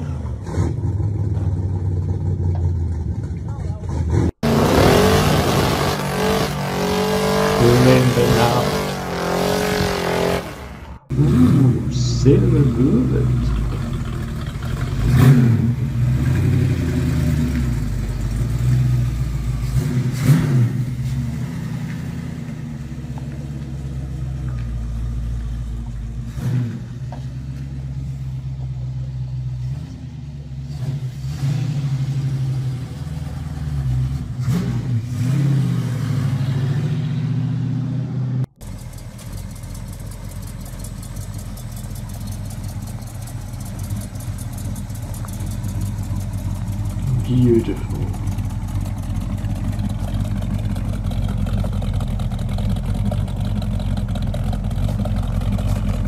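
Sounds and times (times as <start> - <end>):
car engine idling: 0.0 - 34.4, 38.4 - 56.0
car engine revving: 0.0 - 56.0.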